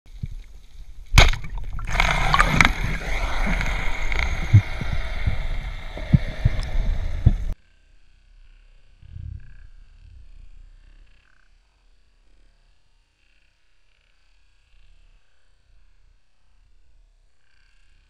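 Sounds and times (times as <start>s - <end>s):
speargun firing underwater: 1.1s - 7.5s.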